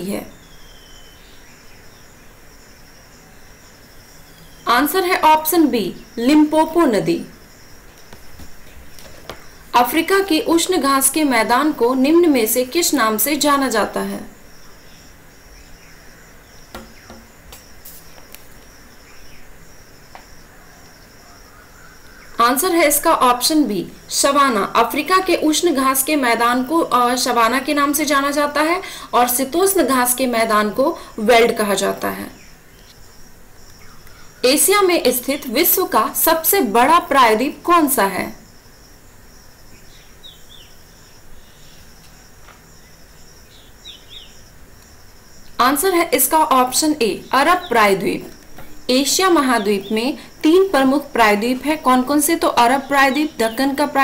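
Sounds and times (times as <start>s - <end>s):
high-pitched insect chirring: 0.0s - 28.8s.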